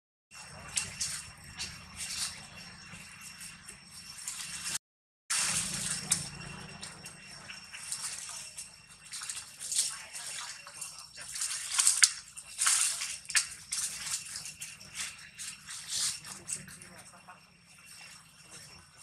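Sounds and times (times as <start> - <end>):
dry leaves crackling and rustling: 0.4 - 2.8, 4.2 - 17.0.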